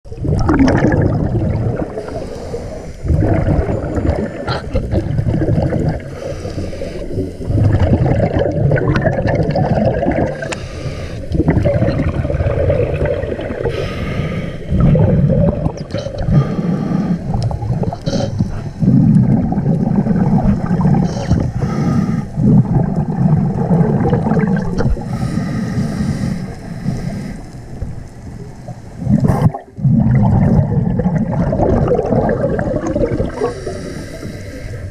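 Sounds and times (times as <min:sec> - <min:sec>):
exhaled bubbles gurgling: 0:00.0 - 0:34.9
regulator hissing on inhale: 0:01.9 - 0:03.1, 0:06.0 - 0:07.7, 0:10.4 - 0:11.4, 0:13.6 - 0:14.8, 0:16.1 - 0:19.1, 0:20.9 - 0:22.5, 0:25.0 - 0:27.9, 0:33.3 - 0:34.9.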